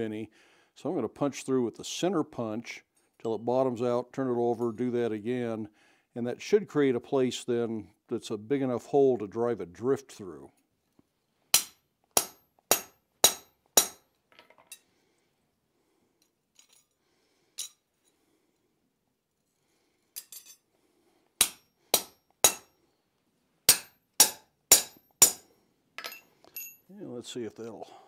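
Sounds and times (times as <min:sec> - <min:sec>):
hammer striking punch on metal: 0:11.6 - 0:14.0, 0:21.4 - 0:22.7, 0:23.7 - 0:25.4
light metallic clinks: 0:26.0 - 0:26.9.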